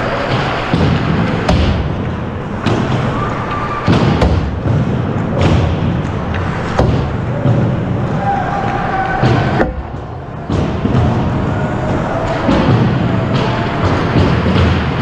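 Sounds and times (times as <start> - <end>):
hockey sticks striking pucks: 0.0 - 15.0
skates rumbling on ice: 0.0 - 15.0.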